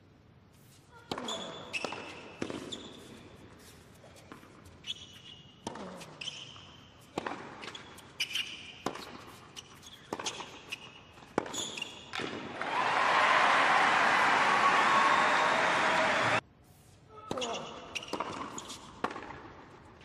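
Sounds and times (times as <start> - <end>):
shoes squeaking on court: 0.6 - 12.3, 17.4 - 19.6
tennis ball struck by rackets: 7.1 - 7.7, 18.0 - 19.6.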